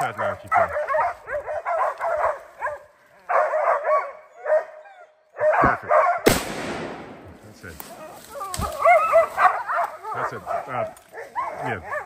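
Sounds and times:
dogs barking: 0:00.0 - 0:06.3, 0:08.6 - 0:12.0
loud gunshot: 0:06.3 - 0:07.6.

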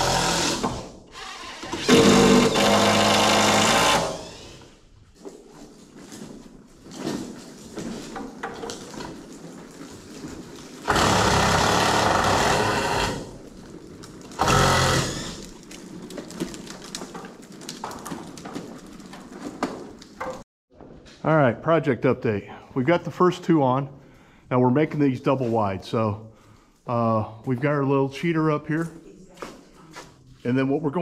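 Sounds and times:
impact driver driving fasteners: 0:00.0 - 0:04.7, 0:10.9 - 0:13.3, 0:14.4 - 0:15.6.

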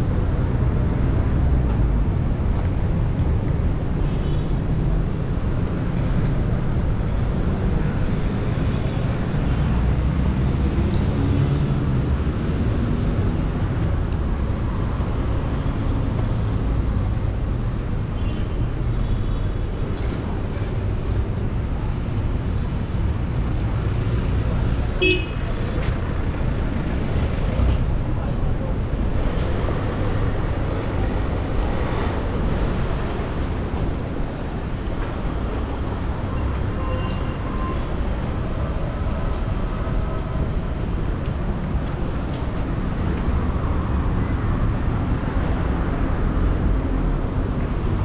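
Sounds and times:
traffic rumble: 0:00.0 - 0:48.0.

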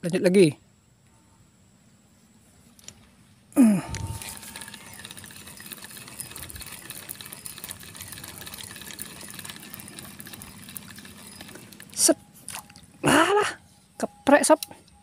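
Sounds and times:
low motor hum: 0:03.6 - 0:14.0.

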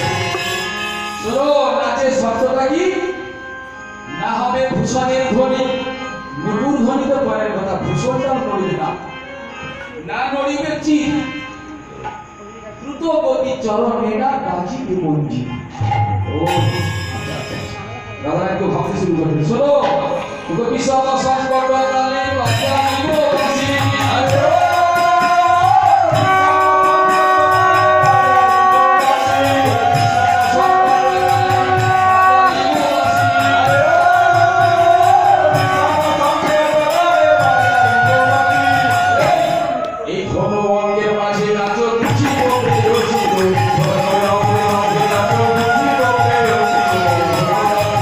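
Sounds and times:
jingling percussion: 0:00.0 - 0:14.2, 0:15.5 - 0:39.8, 0:41.3 - 0:48.0
man singing into microphone: 0:04.1 - 0:09.1, 0:19.3 - 0:48.0.

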